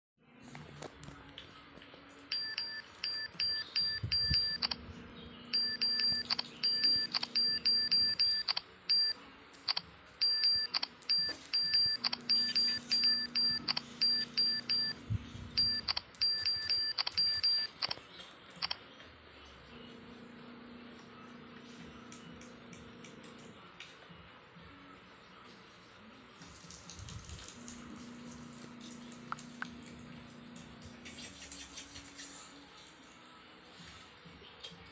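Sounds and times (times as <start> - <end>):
keyboard tap chimes: 2.3 - 4.8, 5.6 - 9.1.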